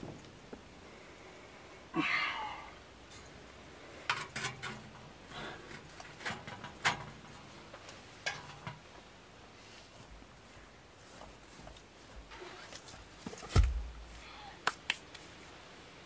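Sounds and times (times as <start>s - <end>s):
sheet metal pipes clanking: 4.0s - 7.6s, 8.2s - 8.9s.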